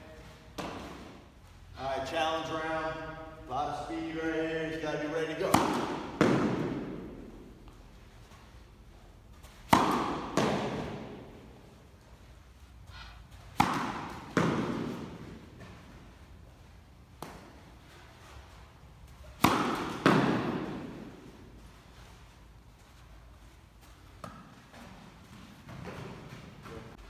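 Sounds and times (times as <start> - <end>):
tennis racket hitting balls: 0.3 - 1.3, 5.0 - 8.4, 9.3 - 11.9, 12.9 - 16.4, 17.0 - 22.0, 23.8 - 27.0
ball thud: 5.4 - 7.4, 9.6 - 11.4, 13.5 - 15.9, 19.2 - 21.3.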